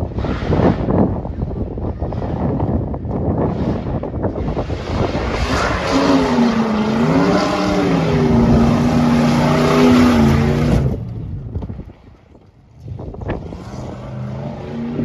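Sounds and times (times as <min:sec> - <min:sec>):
rally car engine revving: 0:00.0 - 0:11.6, 0:12.8 - 0:15.0
loud rush of noise: 0:03.5 - 0:11.0.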